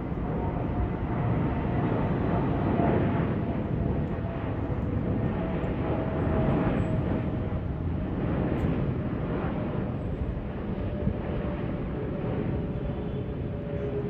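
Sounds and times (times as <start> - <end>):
jet engines droning: 0.0 - 14.0.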